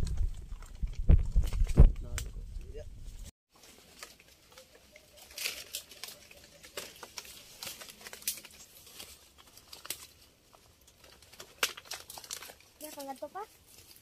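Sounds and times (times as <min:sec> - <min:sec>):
leaves and twigs rustling: 0:00.0 - 0:14.0
twigs snapping: 0:03.6 - 0:14.0.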